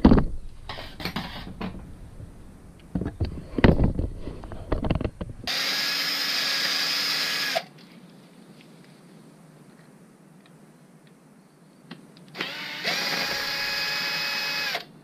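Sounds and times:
objects clattering on workbench: 0:00.0 - 0:01.9
cordless drill running: 0:05.5 - 0:07.7, 0:12.4 - 0:14.9.

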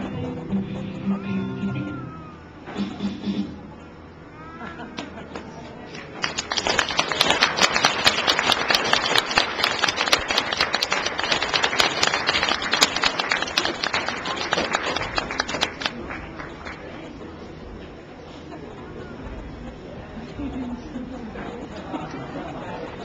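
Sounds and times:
audience applauding: 0:06.0 - 0:17.0.

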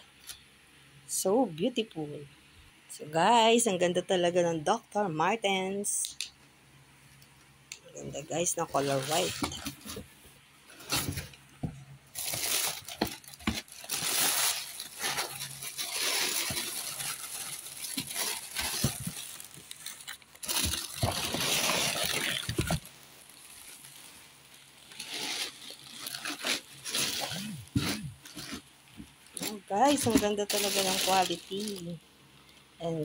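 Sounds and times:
tissue paper crinkling: 0:08.5 - 0:11.4, 0:12.1 - 0:32.0.

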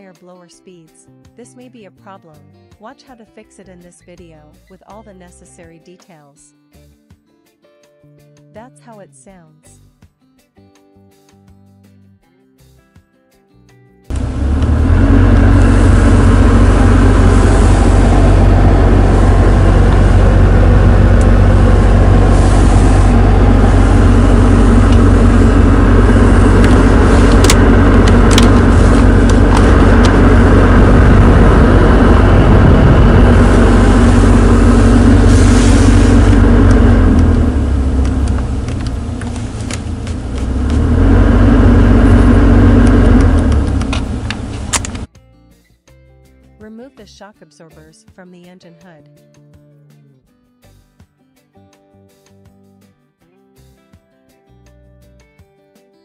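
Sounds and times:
heater blower fan running: 0:14.1 - 0:45.1.

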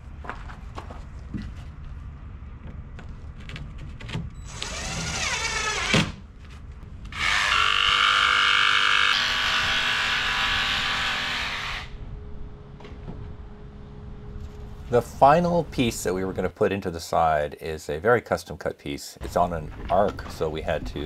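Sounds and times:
cordless drill whine: 0:04.4 - 0:06.0, 0:07.1 - 0:12.0.

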